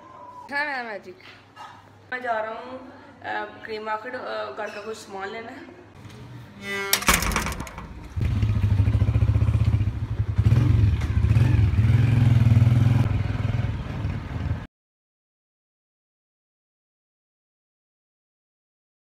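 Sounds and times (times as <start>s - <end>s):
metal gate clanking and scraping: 6.6s - 8.2s
small motorcycle engine running: 7.1s - 14.5s.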